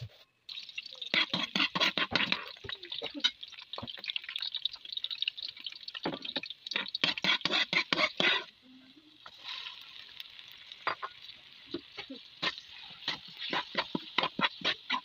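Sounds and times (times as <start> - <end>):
onions sizzling in hot oil: 0.5 - 15.0
metal spoon scraping a wok: 1.1 - 2.6, 6.7 - 8.5, 12.4 - 15.0.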